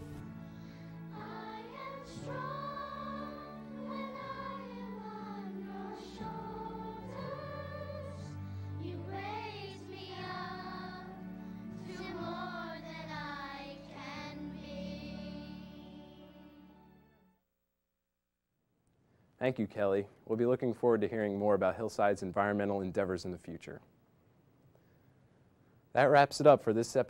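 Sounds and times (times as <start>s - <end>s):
sustained instrumental accompaniment: 0.0s - 17.3s
children's choir singing: 1.0s - 16.8s.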